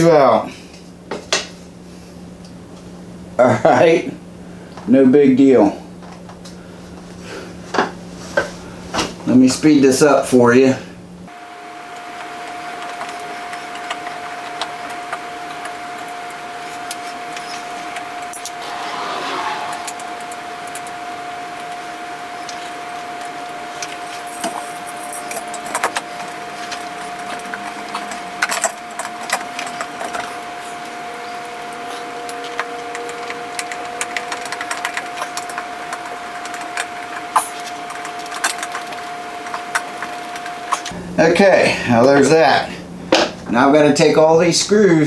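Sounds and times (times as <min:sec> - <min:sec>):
steady high-pitched tone: 0:18.2 - 0:21.6.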